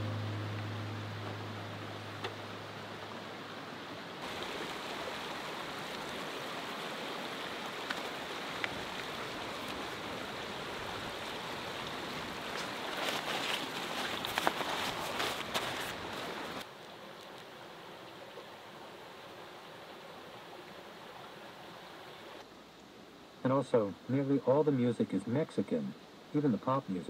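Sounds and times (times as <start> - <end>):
outdoor background noise: 0.0 - 27.0
fabric rustling: 12.5 - 16.4.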